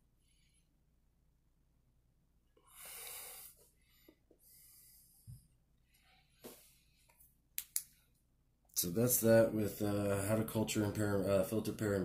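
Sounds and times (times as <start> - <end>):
breaths close to microphone: 2.6 - 7.2.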